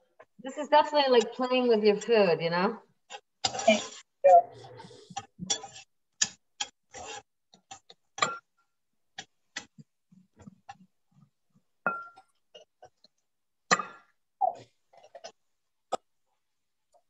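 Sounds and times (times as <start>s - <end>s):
knife scraping corn kernels: 3.1s - 4.0s, 4.8s - 5.9s, 6.6s - 7.3s.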